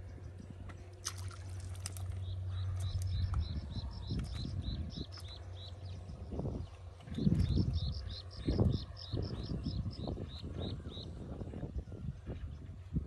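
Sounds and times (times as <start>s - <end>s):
steady low hum: 0.0s - 13.0s
water splash: 1.0s - 2.2s.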